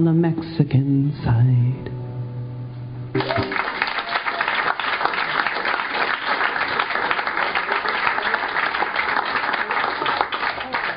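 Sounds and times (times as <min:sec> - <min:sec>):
audience applause: 0:03.2 - 0:10.9.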